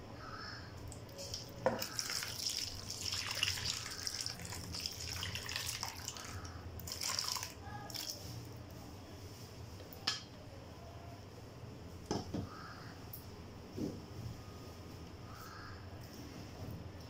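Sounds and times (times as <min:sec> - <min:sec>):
water pouring into a bowl: 0:00.9 - 0:08.4.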